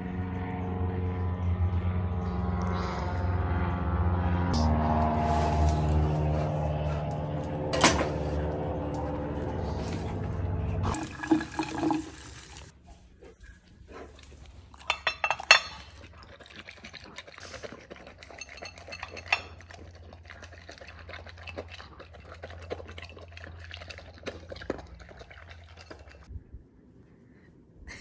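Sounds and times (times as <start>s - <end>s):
tap water running into bowl: 10.9s - 12.7s
bowl clinking: 14.8s - 16.0s, 18.2s - 19.8s.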